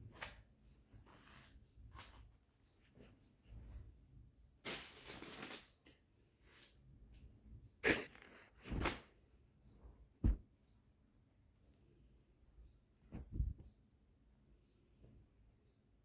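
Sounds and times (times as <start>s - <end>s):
cloth and plastic rustling: 4.6s - 6.8s
short thumps: 10.2s - 10.5s.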